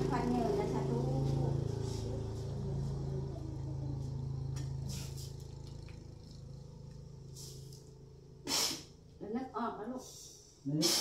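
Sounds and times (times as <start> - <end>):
low steady hum: 0.0 - 10.7
person blowing breathy puff: 8.4 - 8.9, 10.8 - 11.0.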